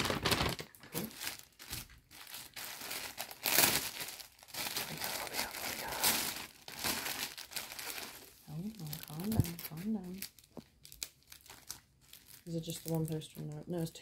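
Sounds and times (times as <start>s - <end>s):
plastic packaging crinkling: 0.0s - 14.0s.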